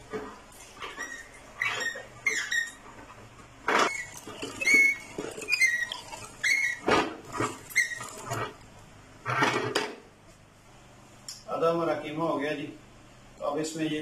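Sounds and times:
meat grinder crank squeaking: 0:00.8 - 0:02.9, 0:03.7 - 0:08.5.

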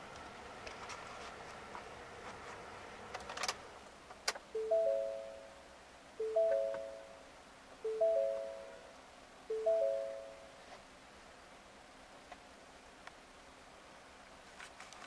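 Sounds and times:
dashboard warning chime: 0:04.6 - 0:05.6, 0:06.2 - 0:07.2, 0:07.9 - 0:08.9, 0:09.5 - 0:10.5.

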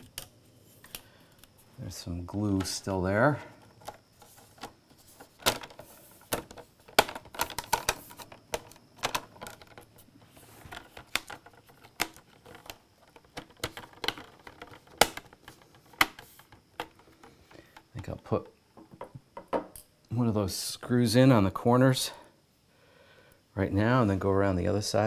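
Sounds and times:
plastic clicks and snaps: 0:00.0 - 0:01.5, 0:10.7 - 0:17.9.

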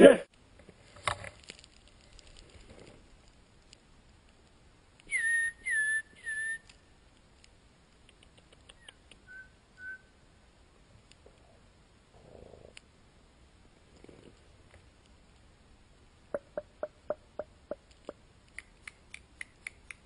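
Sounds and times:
whistled notes: 0:05.1 - 0:06.7, 0:09.3 - 0:10.1.

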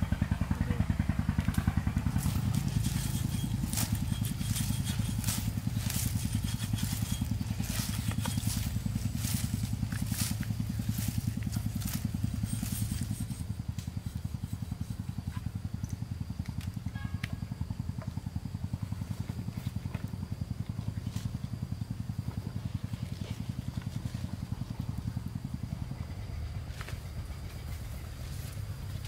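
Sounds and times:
small engine running: 0:00.0 - 0:29.0.

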